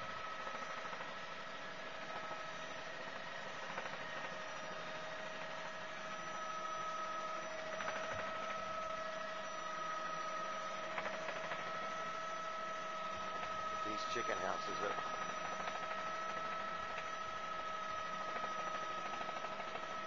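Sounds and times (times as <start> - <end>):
helicopter cabin drone: 0.0 - 20.0
high whine: 6.0 - 20.0.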